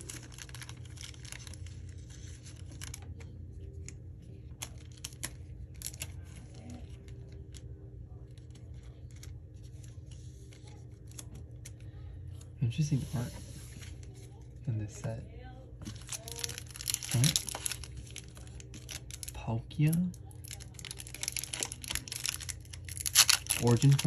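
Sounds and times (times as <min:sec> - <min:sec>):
low steady hum: 0:00.0 - 0:24.0
trading cards clicking and rustling: 0:20.5 - 0:24.0.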